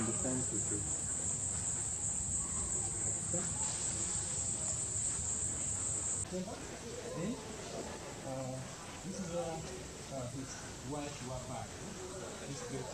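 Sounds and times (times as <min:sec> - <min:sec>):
insects singing: 0:00.0 - 0:06.3.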